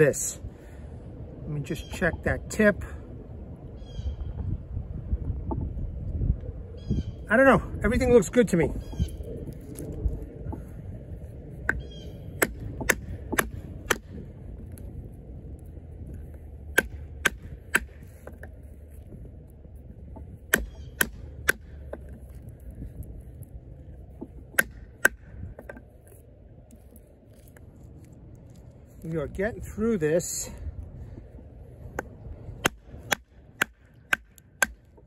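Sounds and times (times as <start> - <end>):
knife hammered through wood: 12.4 - 14.1, 16.7 - 18.0, 20.5 - 21.8, 24.5 - 25.2, 32.6 - 34.9.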